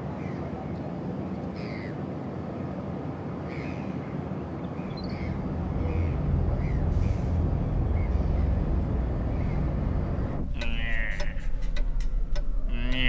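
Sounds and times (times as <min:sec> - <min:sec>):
birds calling: 0:01.5 - 0:02.1, 0:03.4 - 0:13.0
steady low rumble: 0:04.8 - 0:13.0.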